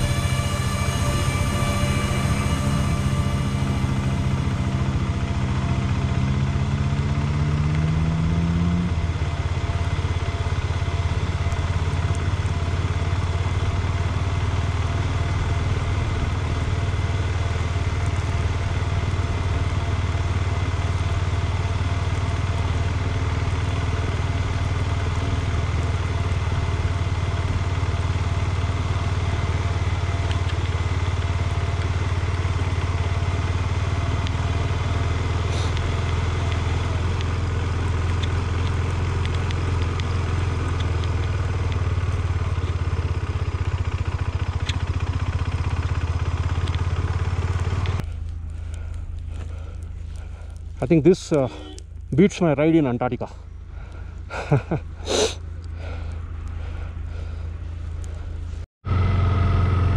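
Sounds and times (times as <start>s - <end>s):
rising tone: 0.0s - 8.7s
motorcycle engine rumbling: 0.0s - 59.9s.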